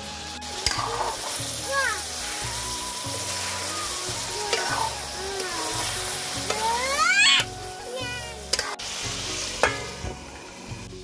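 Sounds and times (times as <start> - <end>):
meat sizzling in oil: 0.0 - 11.0
rising squeal: 0.1 - 6.2
metal ladle scraping wok: 0.4 - 11.0.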